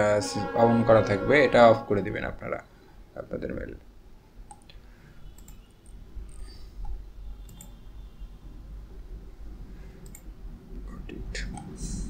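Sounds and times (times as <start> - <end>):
steady low hum: 0.0 - 4.2, 8.0 - 12.0
computer mouse clicking: 4.5 - 7.8, 10.0 - 10.3, 11.5 - 11.8.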